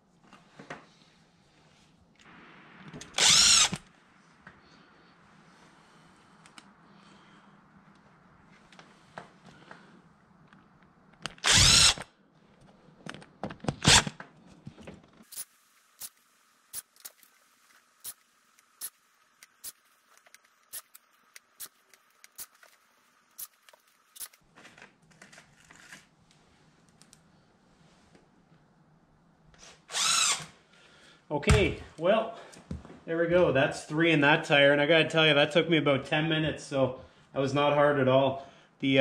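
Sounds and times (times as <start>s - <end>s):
impact driver spinning: 3.0s - 3.9s, 11.2s - 12.1s, 13.6s - 14.2s.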